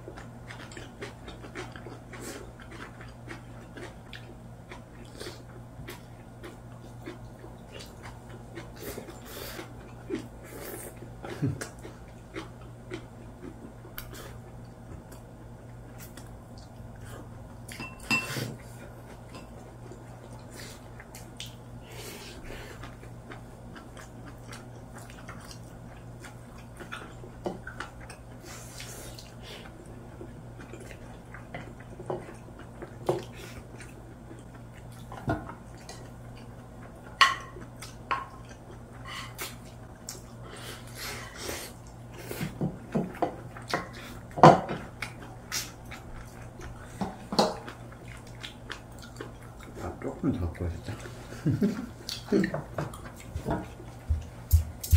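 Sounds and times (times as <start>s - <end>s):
utensils clinking on ceramic bowls: 17.7s - 18.4s.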